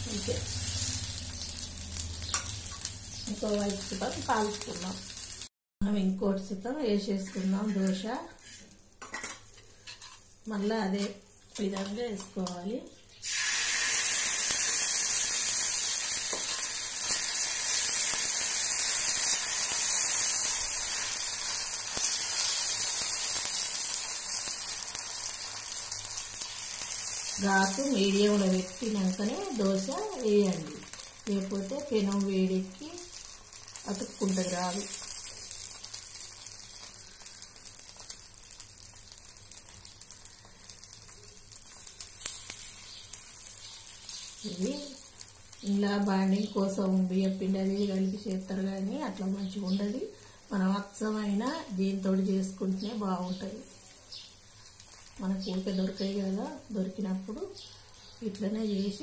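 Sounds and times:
batter sizzling on hot griddle: 0:00.0 - 0:05.5, 0:07.0 - 0:59.0.

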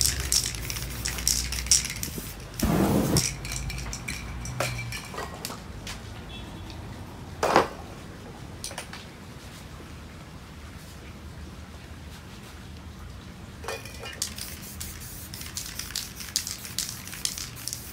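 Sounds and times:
spray paint burst: 0:00.0 - 0:03.3, 0:14.2 - 0:17.9
spray can rattling: 0:00.0 - 0:05.2, 0:13.8 - 0:17.9.

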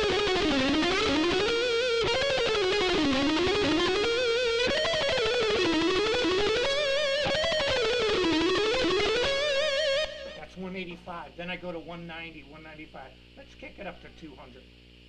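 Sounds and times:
electric guitar fast picked runs: 0:00.0 - 0:10.4.

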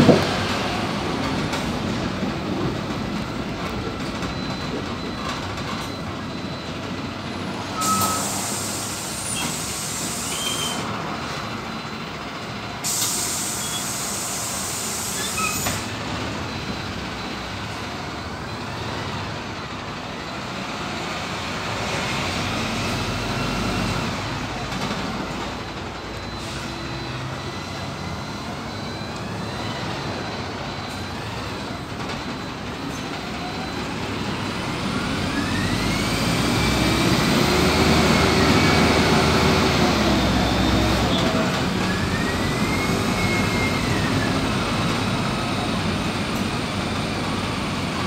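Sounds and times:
bus engine and road noise: 0:00.0 - 0:48.0
compressed air hiss: 0:12.8 - 0:15.5.

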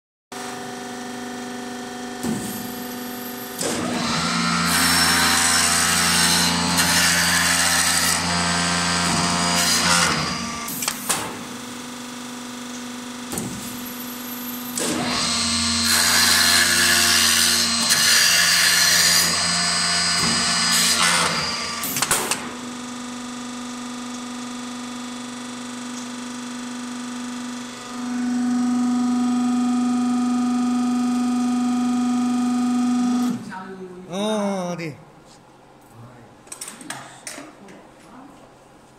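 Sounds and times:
machine humming: 0:00.4 - 0:35.1
wood lathe cutting wood: 0:03.8 - 0:10.9, 0:14.8 - 0:22.0, 0:26.6 - 0:31.9.

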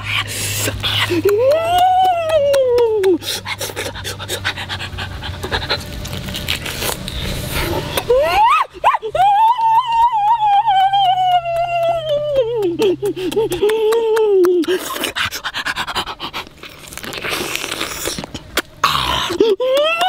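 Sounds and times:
crackly chewing and tearing: 0:03.5 - 0:08.1, 0:14.6 - 0:19.4
wet mouth-smacking: 0:14.4 - 0:19.4.

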